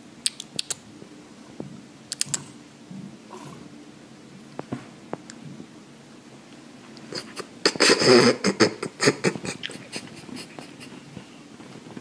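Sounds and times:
sharp clicks: 2.1 - 2.5
cat rustling and scratching on bed: 10.0 - 12.0.

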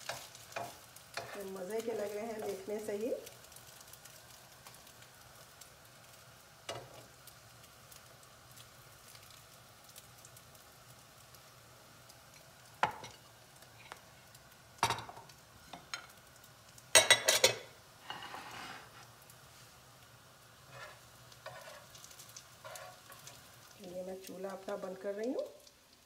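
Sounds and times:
spatula knocking and scraping pan: 0.0 - 1.4, 20.7 - 22.0, 22.6 - 23.4
faint sizzling in a frying pan: 0.0 - 26.0.

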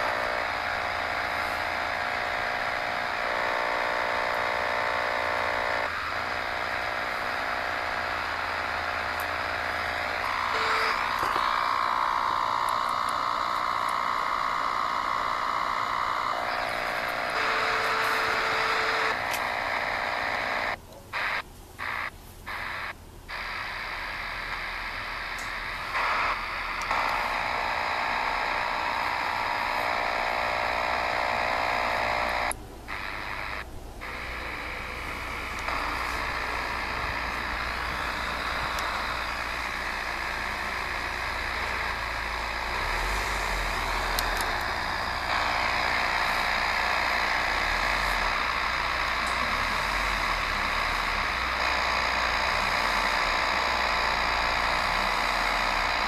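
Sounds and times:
buzzing interference signal: 0.0 - 56.0
faint steady tones: 0.0 - 56.0
radio static: 0.0 - 56.0.

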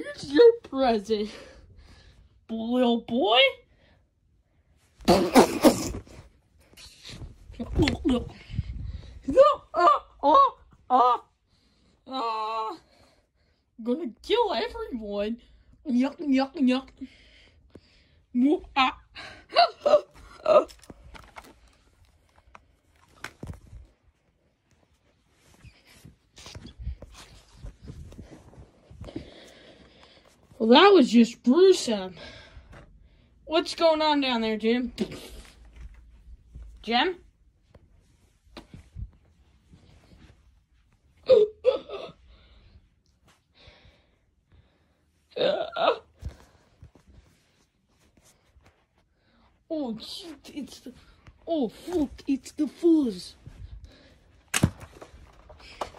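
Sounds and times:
person's voice: 0.0 - 1.6, 2.5 - 3.6, 7.5 - 8.5, 9.2 - 11.3, 13.8 - 17.1, 18.4 - 20.8, 30.6 - 32.3, 33.5 - 35.5, 36.8 - 37.2, 49.7 - 53.6.

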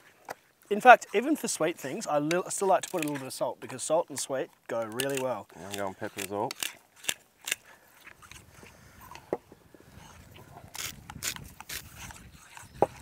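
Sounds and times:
pepper grinder crunching: 4.2 - 7.6, 10.7 - 13.0.

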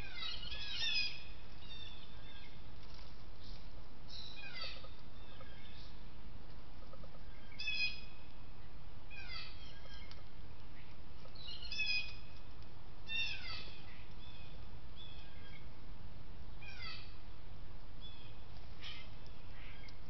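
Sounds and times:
songbirds chirping: 0.0 - 20.0
steady background noise: 0.0 - 20.0.

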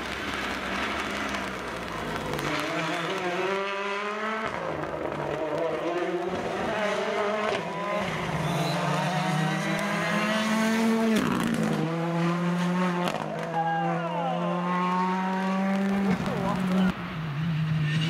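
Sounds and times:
sharp cracks: 0.0 - 3.4
rally car engine at high revs: 0.0 - 13.5, 14.4 - 18.0
car passing by: 14.4 - 18.0.

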